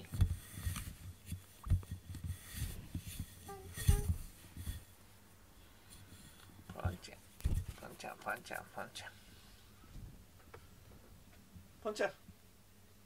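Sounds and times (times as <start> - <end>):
cat rubbing against microphone: 0.0 - 4.9.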